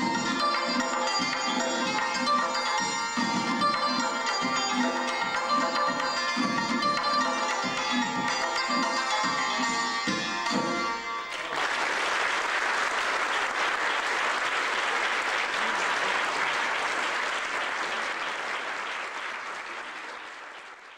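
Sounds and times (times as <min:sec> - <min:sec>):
santur and drum notes ringing: 0:00.0 - 0:11.3
audience applauding: 0:11.2 - 0:20.9.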